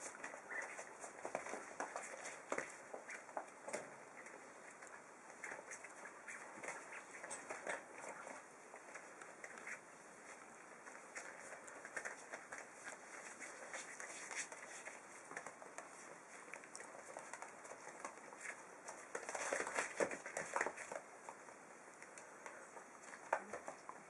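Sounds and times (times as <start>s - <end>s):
puppy paws pattering: 0.0s - 24.0s
paper crinkling: 4.2s - 21.4s.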